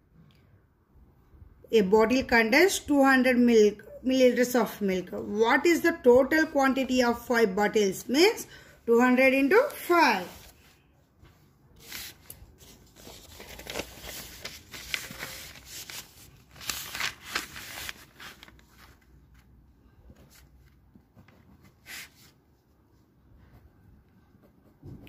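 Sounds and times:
paper rustling: 9.6s - 22.4s.

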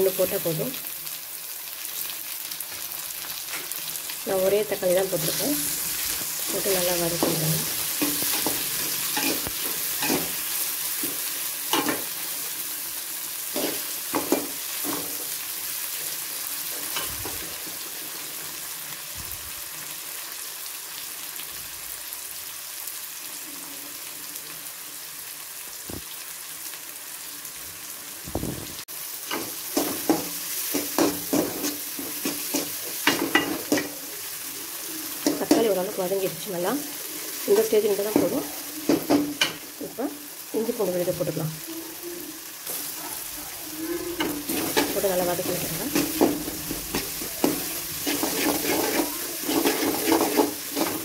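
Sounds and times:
vegetables sizzling in oil: 0.0s - 51.0s
metal spatula scraping a pan: 5.2s - 12.2s, 43.9s - 51.0s.

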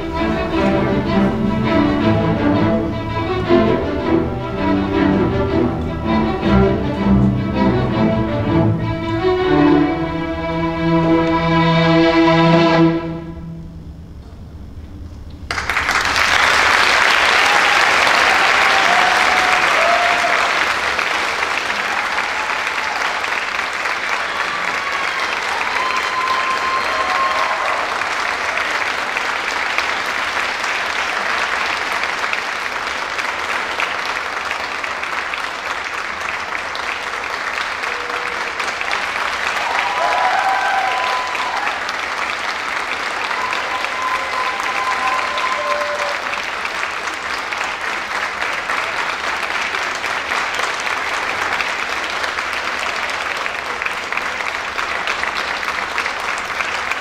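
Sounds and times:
audience applauding: 0.0s - 7.8s, 15.5s - 57.0s
audience cheering: 15.5s - 32.3s, 36.8s - 47.6s.

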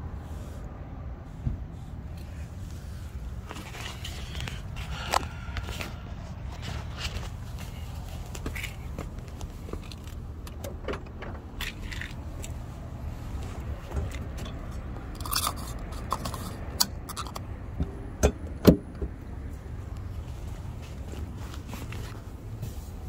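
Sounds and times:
low steady rumble: 0.0s - 23.0s
scraping and handling noise: 2.2s - 10.3s, 11.5s - 17.5s, 19.9s - 23.0s.

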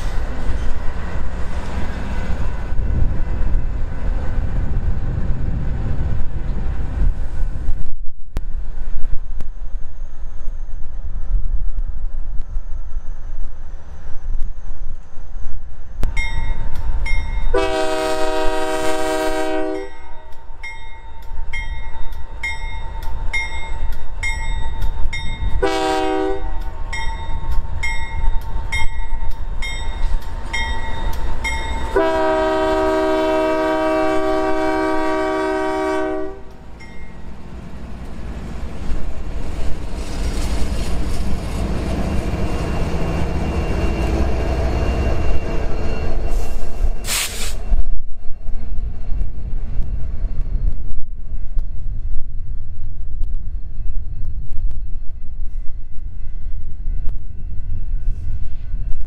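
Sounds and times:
locomotive horn blasts: 17.5s - 20.3s, 25.6s - 26.7s, 31.8s - 36.6s.

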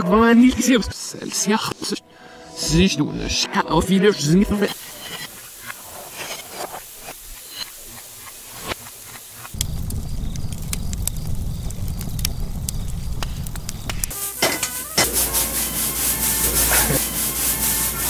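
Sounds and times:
food sizzling in a wok: 4.6s - 10.6s, 13.0s - 18.0s
fire crackling: 4.6s - 18.0s.

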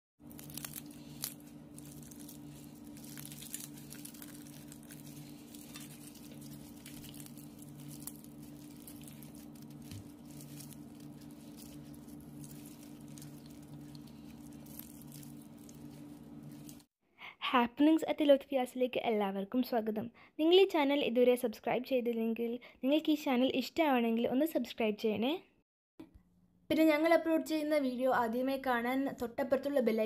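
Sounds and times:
fried chicken crust crackling: 0.2s - 16.9s
steady low hum: 0.2s - 16.9s.

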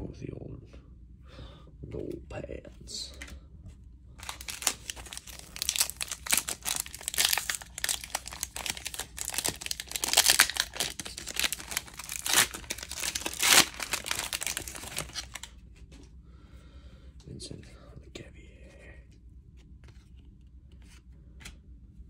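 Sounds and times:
wrapper crinkling: 4.2s - 15.5s.

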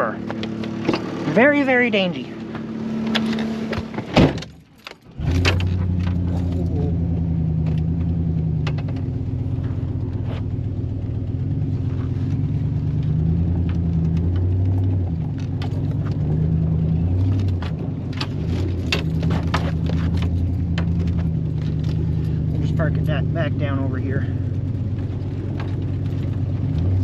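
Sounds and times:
pickup truck engine running: 0.0s - 27.0s
knocks and rattles: 12.4s - 23.3s.

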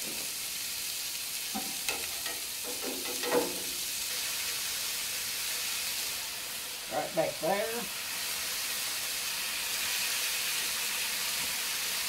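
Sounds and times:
sausage patties sizzling on griddle: 0.0s - 12.0s.

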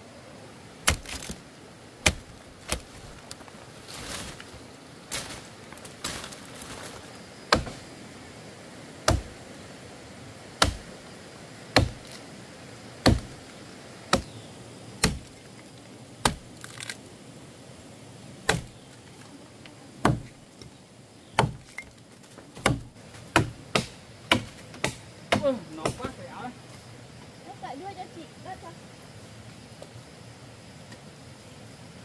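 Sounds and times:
blade chopping tree trunk: 0.8s - 1.4s, 2.0s - 3.1s, 7.5s - 7.8s, 9.0s - 9.4s, 10.6s - 11.0s, 11.7s - 12.2s, 13.0s - 13.4s, 14.1s - 14.4s, 15.0s - 15.4s, 16.2s - 17.0s, 18.4s - 18.8s, 20.0s - 20.4s, 21.4s - 21.8s, 22.6s - 26.1s.

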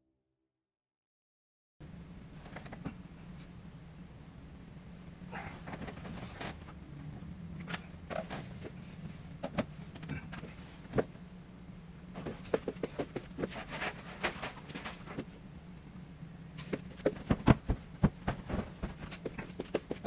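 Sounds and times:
steady low hum: 1.8s - 20.0s
bedding rustling: 5.4s - 6.8s, 7.6s - 11.1s, 12.1s - 15.4s, 16.5s - 20.0s.

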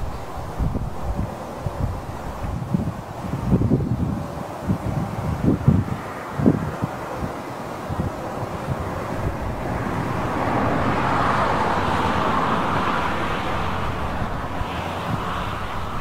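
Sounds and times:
car driving past: 8.1s - 16.0s.

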